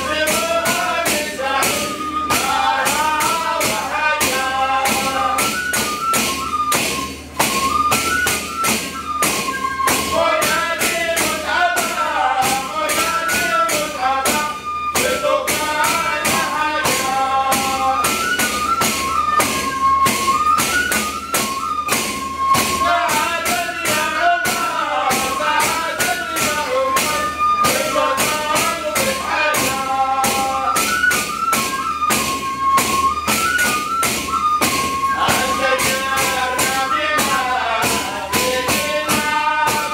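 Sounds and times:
men singing a devotional chant: 0.0 - 5.7, 10.0 - 18.4, 22.7 - 31.1, 35.0 - 39.9
frame drums with jingles: 0.0 - 39.9.

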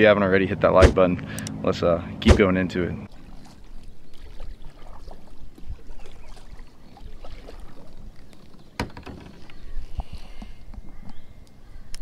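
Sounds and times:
paddle strokes in water: 3.1 - 11.2.

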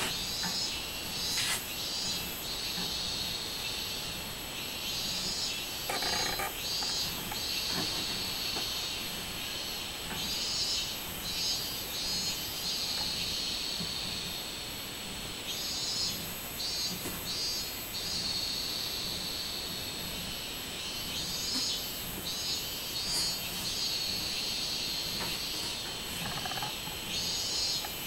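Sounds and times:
cicadas pulsing calls: 0.0 - 28.0
high cicada drone: 0.0 - 28.0.

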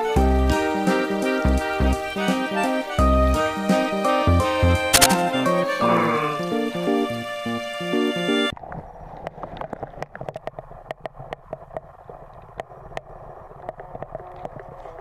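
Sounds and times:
sharp underwater clicks and pops: 4.9 - 5.3, 8.5 - 15.0
underwater water gurgling: 8.5 - 15.0.

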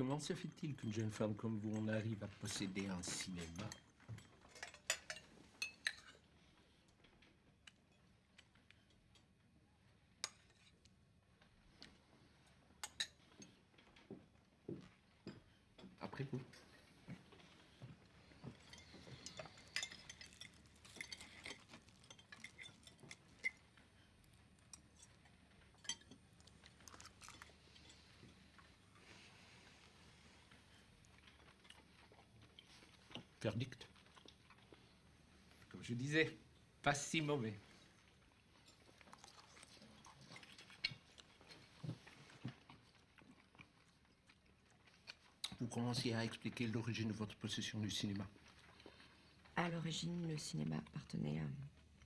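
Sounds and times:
forks clinking on china plates: 4.6 - 6.1
man chewing wet mouth sounds: 26.2 - 29.0, 38.6 - 45.6.

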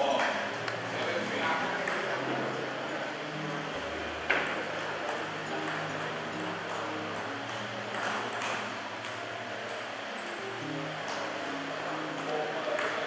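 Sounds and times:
table tennis ball clicking: 1.8 - 2.1, 4.3 - 10.5, 12.7 - 13.0.

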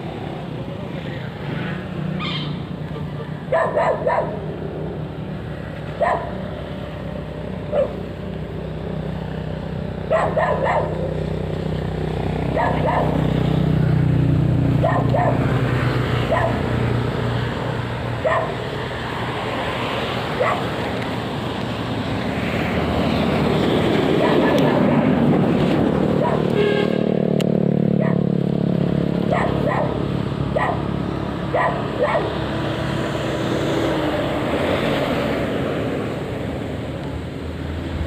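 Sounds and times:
dog barking: 3.5 - 4.4, 6.0 - 6.4, 7.7 - 8.0, 10.1 - 11.1, 12.5 - 13.2, 14.8 - 15.5, 16.2 - 16.7, 18.2 - 18.6, 20.4 - 20.7, 24.2 - 24.8, 26.2 - 26.6, 28.0 - 28.3, 29.3 - 30.9, 31.5 - 32.4.

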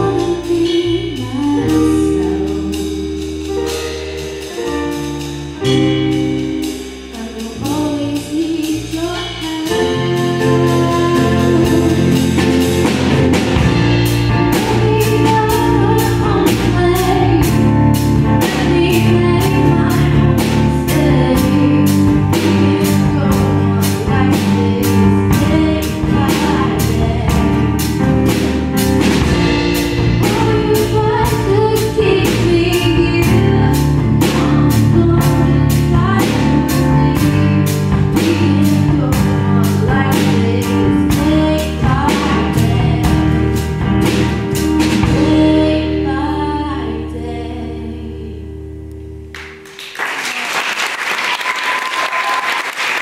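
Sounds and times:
woman singing pop song: 0.0 - 2.8, 7.1 - 12.3, 14.4 - 27.8, 30.2 - 43.5, 45.0 - 48.6
keyboard and steady beat: 0.0 - 45.6
audience applauding: 49.4 - 53.0.

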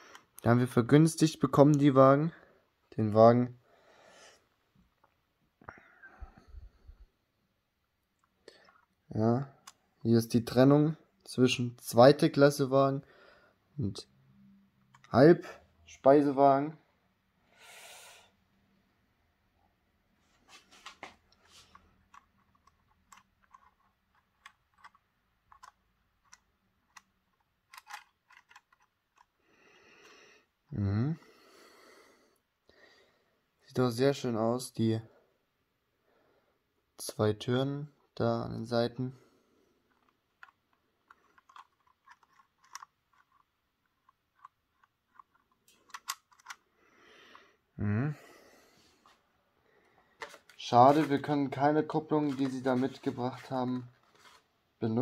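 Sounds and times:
plastic model clicking and tapping: 21.7 - 29.3, 39.9 - 46.6.

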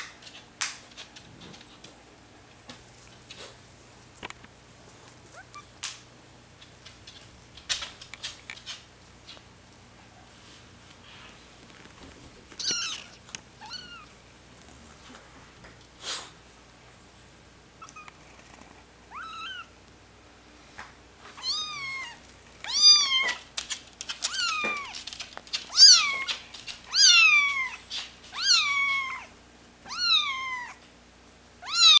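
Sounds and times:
kitten mewing: 12.6 - 14.1, 29.9 - 30.8, 31.6 - 32.0.

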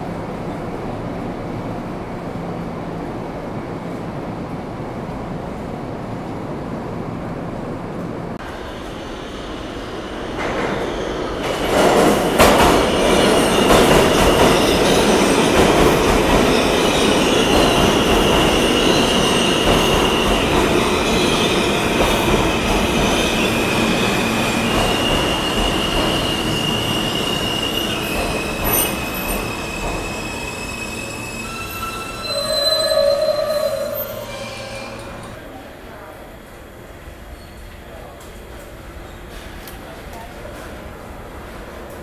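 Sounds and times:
train rumbling on rails: 0.0 - 42.0
high wheel squeal: 23.3 - 35.3.

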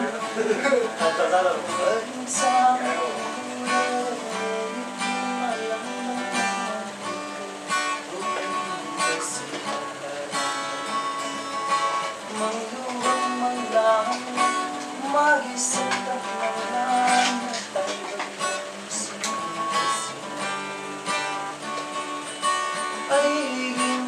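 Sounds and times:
man singing: 0.0 - 21.6, 22.9 - 24.0
acoustic guitar strumming: 0.0 - 24.0.

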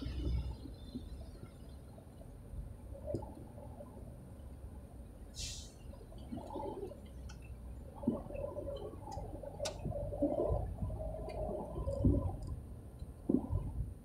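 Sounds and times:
engine and road rumble: 0.0 - 14.0
muffled wavering sounds: 7.8 - 13.9.

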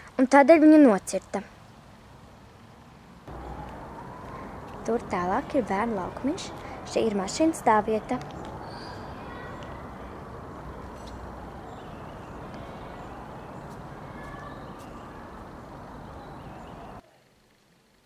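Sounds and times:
distant traffic: 0.9 - 17.0
faint bird chirps: 8.3 - 17.1.

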